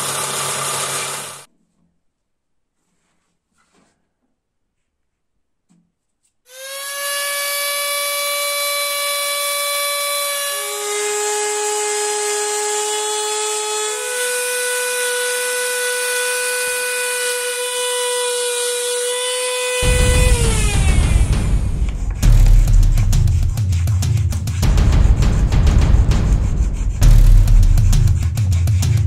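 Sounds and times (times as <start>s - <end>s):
rotary tool motor whine: 0.0s - 1.5s, 6.5s - 22.1s.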